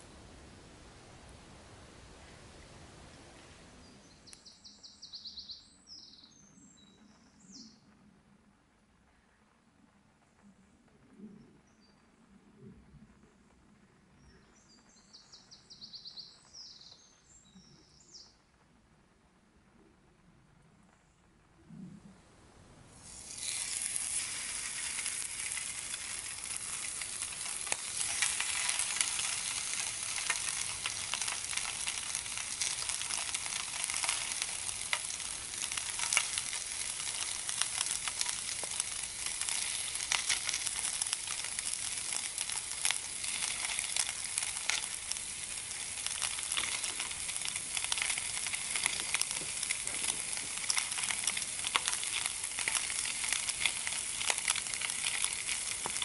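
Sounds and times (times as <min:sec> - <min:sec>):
bacon sizzling in frying pan: 0:23.0 - 0:56.0.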